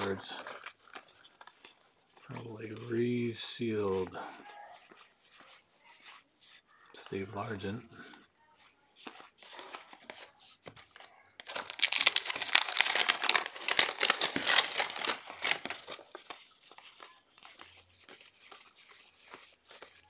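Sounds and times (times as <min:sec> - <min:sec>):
waxed paper wrapper tearing: 0:00.0 - 0:01.2, 0:11.4 - 0:20.0.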